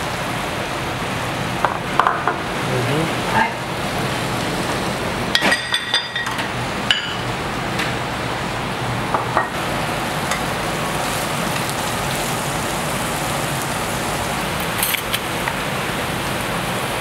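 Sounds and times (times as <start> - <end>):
plates and bowls clinking: 5.4 - 7.2
meat sizzling on a griddle: 9.5 - 17.0.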